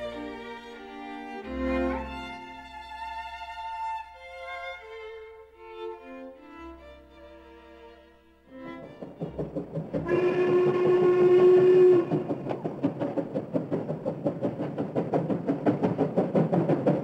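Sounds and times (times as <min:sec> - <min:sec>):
steam locomotive chuffing: 0:08.8 - 0:17.0
low steam whistle blast: 0:10.0 - 0:12.5.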